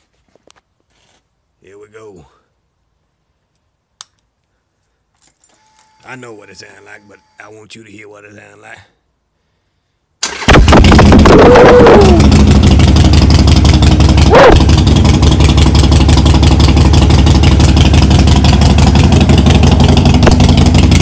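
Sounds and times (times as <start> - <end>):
motorcycle engine revving and idling: 10.6 - 21.0.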